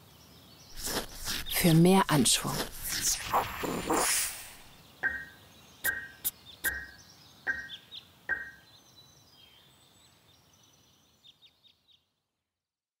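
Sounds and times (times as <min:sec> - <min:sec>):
high bird-like chirps: 0:00.8 - 0:08.7
sharp ringing knocks: 0:05.9 - 0:08.6.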